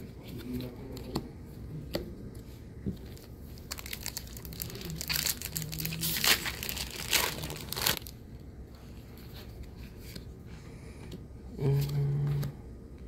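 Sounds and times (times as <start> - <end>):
plastic wrapper crinkling and tearing: 3.1 - 8.2.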